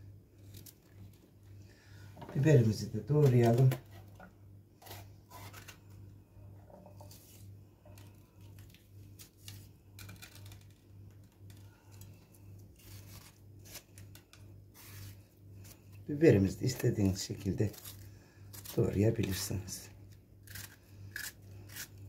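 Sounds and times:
low steady hum: 0.0 - 22.0
knife cutting and scraping: 4.8 - 5.8, 12.8 - 14.1, 14.7 - 15.9, 20.4 - 22.0.

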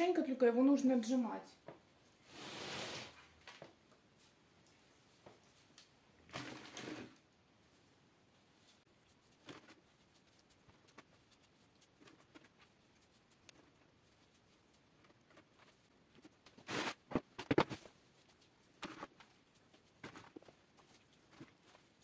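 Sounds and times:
plastic tubs scraping and knocking: 6.3 - 7.2
hands patting damp coir: 8.7 - 22.0.

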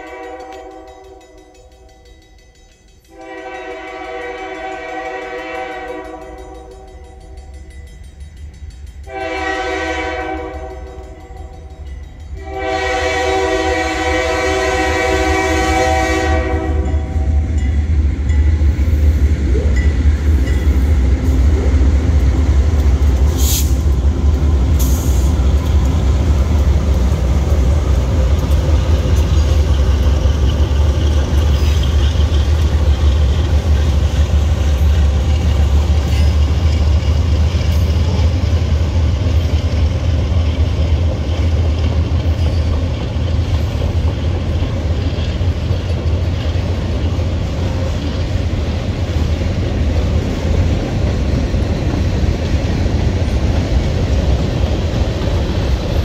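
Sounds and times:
locomotive air horn blasts: 0.0 - 1.0, 3.1 - 6.4, 9.1 - 10.9, 12.4 - 17.4
freight train rolling by: 0.0 - 56.0
train wheel clicks: 22.0 - 56.0.

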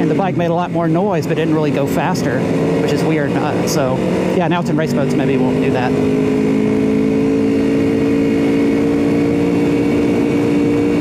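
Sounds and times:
motorcycle engine cruising: 0.0 - 11.0.

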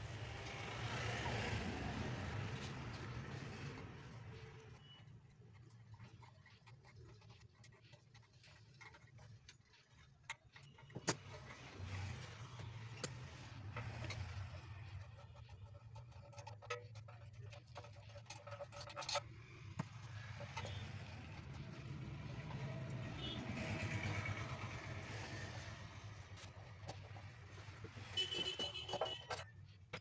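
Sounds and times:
metal tools clicking and tapping: 12.8 - 14.6, 28.4 - 30.0.

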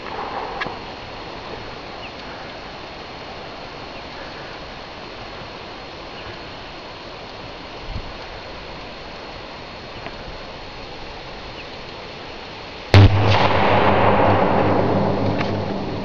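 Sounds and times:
steady hiss: 0.0 - 16.0
deep electrical hum: 13.0 - 16.0
loud bang: 13.0 - 16.0.

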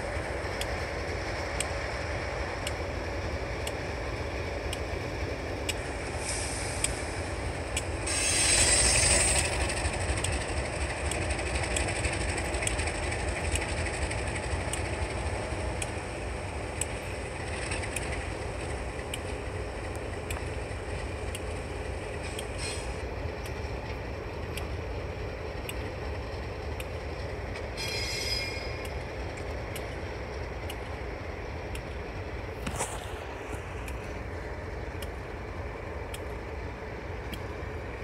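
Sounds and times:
locomotive engine rumble: 0.0 - 38.0
faint regular clicks: 0.2 - 4.0, 8.6 - 27.9, 28.6 - 38.0
air hiss: 5.9 - 10.1, 22.2 - 23.0.

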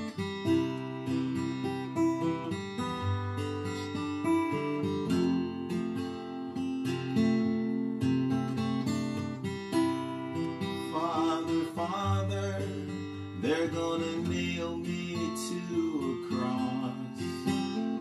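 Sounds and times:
acoustic guitar strumming: 0.0 - 18.0
man singing: 10.6 - 18.0.

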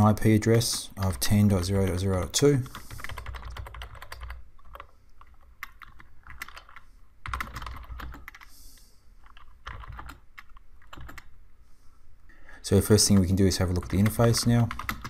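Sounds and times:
computer keyboard typing: 2.6 - 8.5, 9.2 - 11.3, 12.8 - 15.0.

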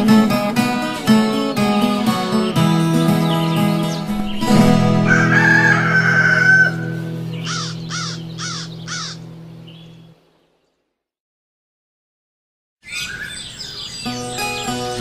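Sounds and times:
guitar chord ringing: 0.0 - 10.1
bird calls: 0.8 - 10.8, 12.8 - 15.0
rooster crowing: 4.5 - 9.2.

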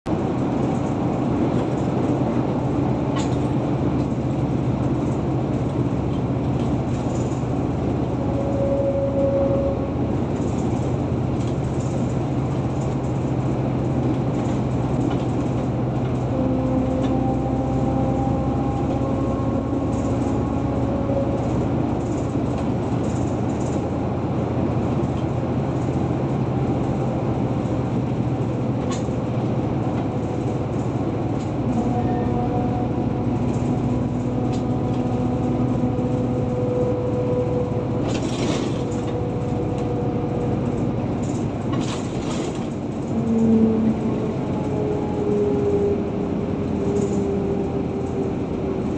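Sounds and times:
car driving on highway: 0.1 - 48.9.

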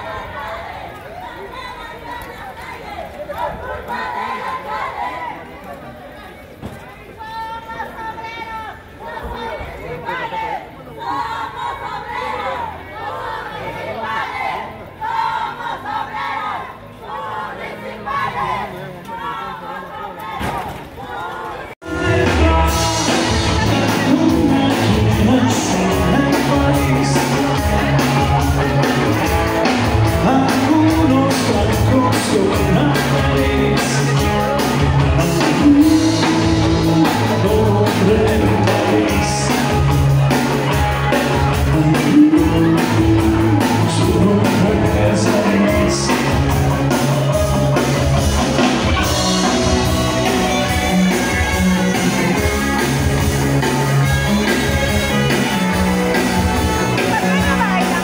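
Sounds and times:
person singing: 21.8 - 40.3, 40.9 - 51.8
live rock band: 21.8 - 58.0
steady drum beat: 21.8 - 58.0.

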